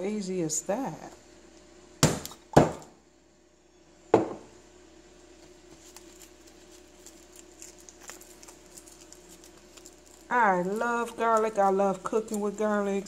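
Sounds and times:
bottle thudding on countertop: 2.0s - 2.9s, 4.1s - 4.5s
garlic skins crackling: 5.3s - 13.0s.

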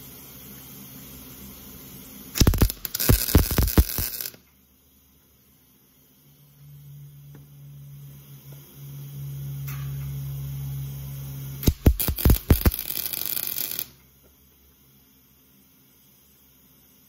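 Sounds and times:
electrical hum: 0.0s - 15.4s
welder arc popping and crackling: 2.3s - 4.5s, 11.6s - 14.1s.

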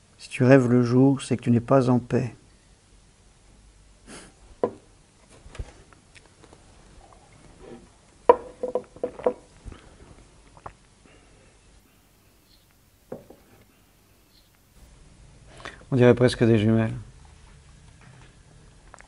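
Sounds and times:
drinking glass knocks and clicks: 8.3s - 9.4s.

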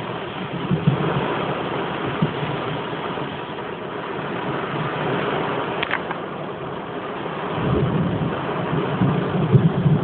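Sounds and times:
heavy rain falling: 0.0s - 10.0s.

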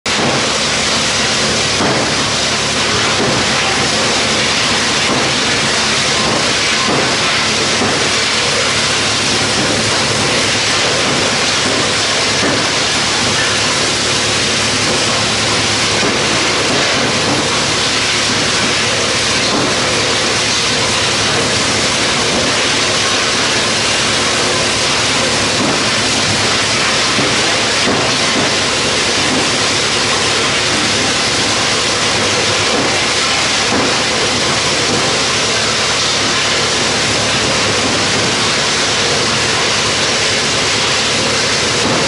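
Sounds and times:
wood chipper running: 0.0s - 42.0s.

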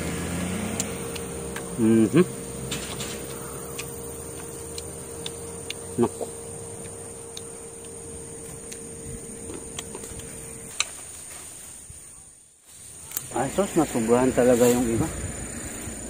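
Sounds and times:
insects chirring: 0.0s - 16.0s
low steady hum: 0.0s - 16.0s
vocal murmur: 1.2s - 2.5s, 3.3s - 7.0s.

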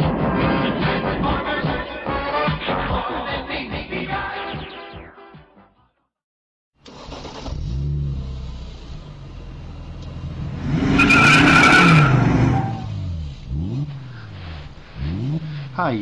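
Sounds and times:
car engine revving: 6.9s - 16.0s
high tyre squeal: 10.5s - 15.8s.

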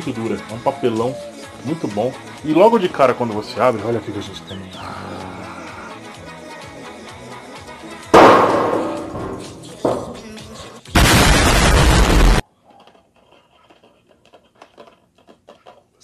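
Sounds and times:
music: 0.0s - 11.4s
sharp bang: 8.2s - 10.2s, 11.0s - 12.4s
explosions: 11.0s - 12.4s.

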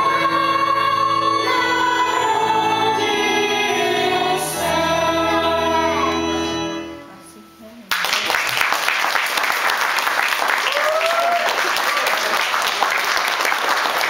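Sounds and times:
children singing: 0.0s - 7.0s
audience applause: 7.9s - 14.0s.

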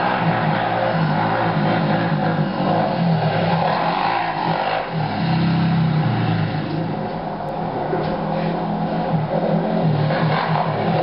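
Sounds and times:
quad engine revving: 0.0s - 7.1s, 7.9s - 11.0s.

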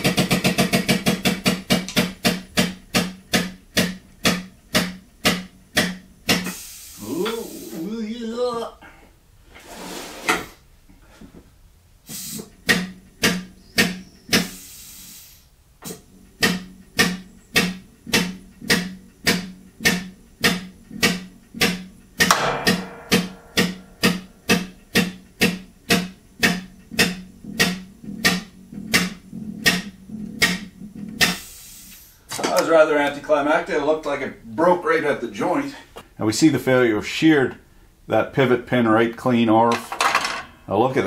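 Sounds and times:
hydraulic pump clacking: 0.0s - 6.5s
short hiss: 12.1s - 12.5s, 14.4s - 15.5s.

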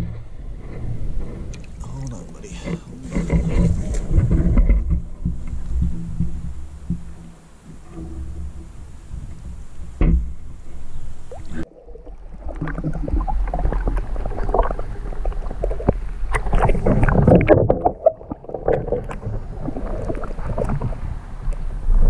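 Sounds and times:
muffled water sloshing and gurgling: 0.0s - 22.0s.

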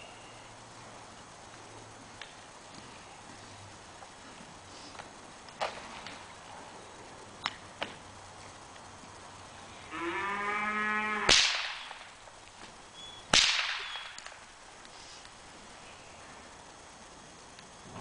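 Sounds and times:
whip cracks: 11.3s - 12.2s, 13.3s - 14.4s.

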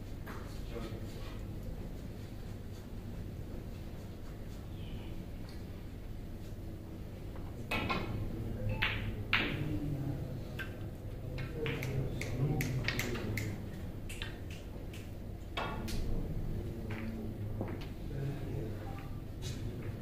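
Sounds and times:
snooker balls clicking: 11.3s - 16.0s.

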